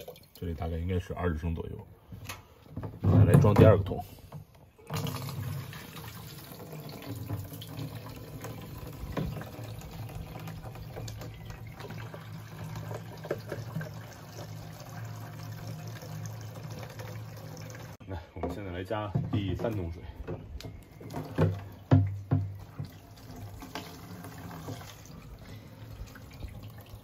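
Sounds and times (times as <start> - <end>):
water pouring into a can: 0.0 - 0.7, 4.8 - 18.0, 22.5 - 27.0.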